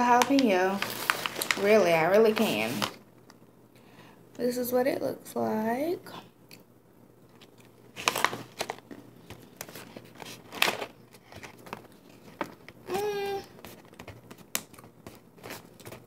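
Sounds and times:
plastic pouch crinkling: 0:00.0 - 0:03.0, 0:07.4 - 0:16.0
person humming: 0:12.9 - 0:13.5.

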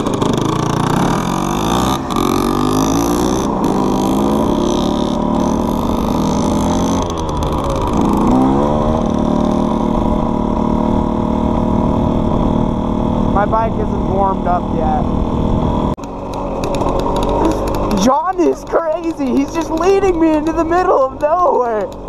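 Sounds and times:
dirt bike engine revving: 0:00.0 - 0:22.0
wind rushing over microphone: 0:05.7 - 0:16.0.

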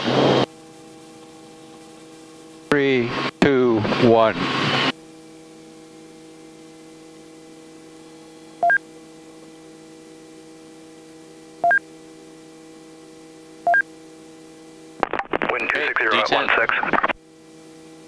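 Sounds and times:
intercom hum: 0:02.6 - 0:04.9, 0:15.0 - 0:17.2.

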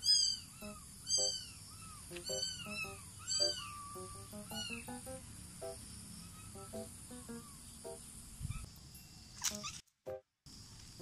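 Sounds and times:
cat meowing: 0:00.0 - 0:04.9.

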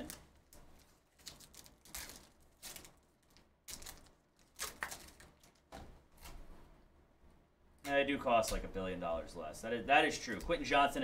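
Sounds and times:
foil wrapper crinkling: 0:00.0 - 0:06.4.

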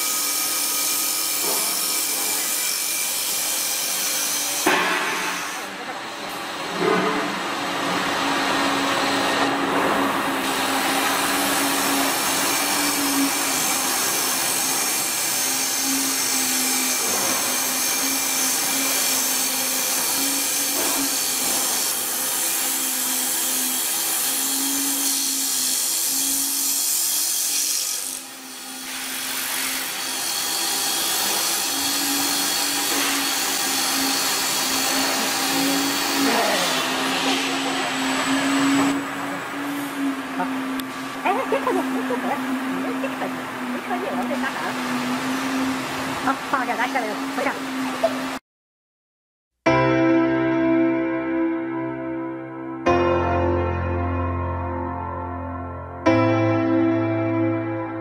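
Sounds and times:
lathe cutting wood hiss: 0:00.0 - 0:05.8, 0:10.2 - 0:48.4.

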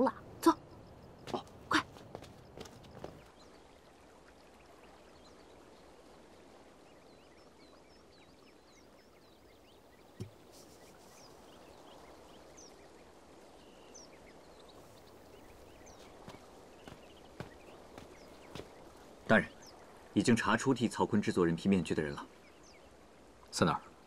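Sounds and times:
bird chirps: 0:13.6 - 0:19.8.

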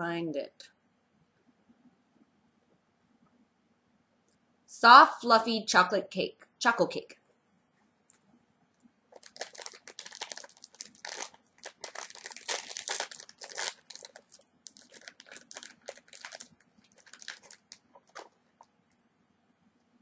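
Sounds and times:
plastic wrapper crinkling: 0:09.1 - 0:18.7.

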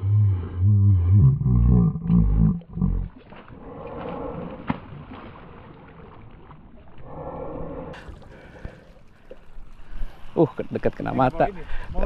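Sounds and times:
loud low-pitched sound: 0:00.0 - 0:03.1
fish thrashing and splashing: 0:03.1 - 0:06.7.

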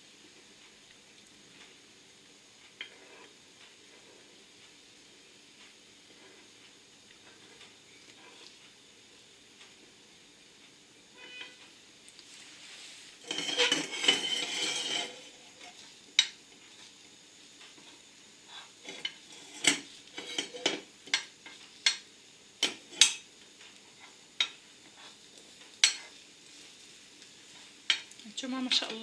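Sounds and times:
metal utensil scraping frying pan: 0:02.8 - 0:03.3, 0:12.6 - 0:16.4, 0:18.6 - 0:22.0, 0:22.6 - 0:25.2, 0:25.8 - 0:26.8.

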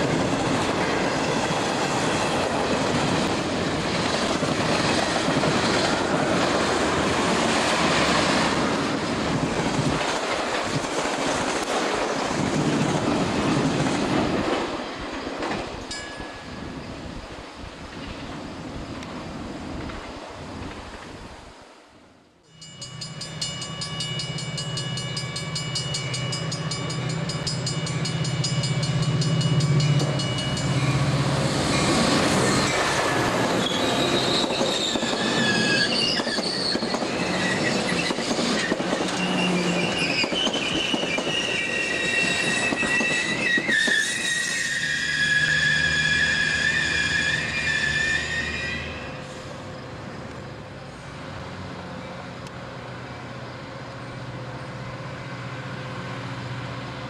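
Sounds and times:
train wheel-and-rail noise: 0:00.0 - 0:57.0
high wavering wheel squeal: 0:28.5 - 0:49.6.

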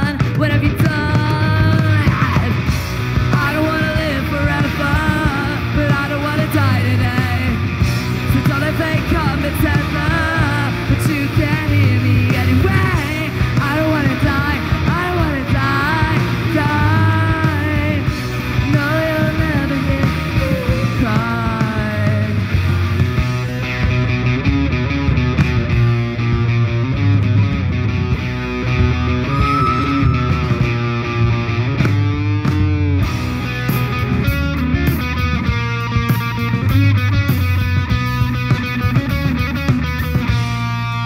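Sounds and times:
person singing and yelling: 0:00.0 - 0:02.7, 0:18.7 - 0:22.4
bass guitar: 0:00.0 - 0:41.0
drums: 0:00.0 - 0:41.0
electric guitar: 0:00.0 - 0:41.0.

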